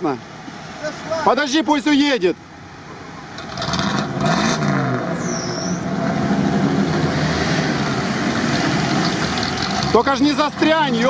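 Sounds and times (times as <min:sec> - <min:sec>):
truck engine under load: 0:05.8 - 0:11.0.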